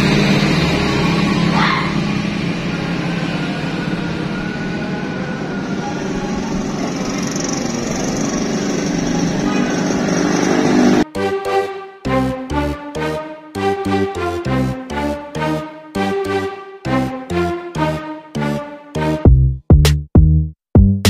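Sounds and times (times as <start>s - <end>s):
vehicle engine hum: 0.0s - 11.0s
traffic rushing: 0.0s - 11.1s.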